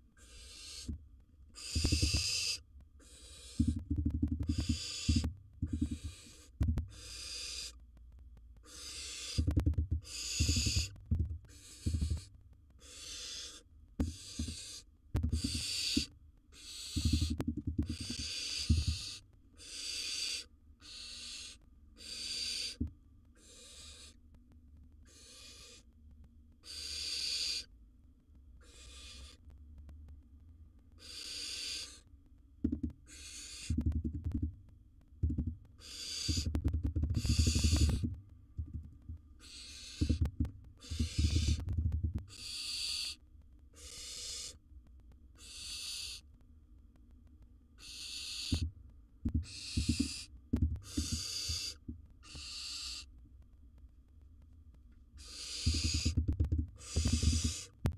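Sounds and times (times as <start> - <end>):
owl rasping hissing calls: 0.2 - 7.8, 8.6 - 24.2, 25.0 - 25.9, 26.6 - 27.7, 28.6 - 29.4, 31.0 - 32.1, 33.0 - 33.9, 35.8 - 38.1, 39.4 - 41.7, 42.3 - 44.6, 45.4 - 46.3, 47.8 - 48.7, 49.4 - 53.1, 55.2 - 56.2, 56.8 - 57.8.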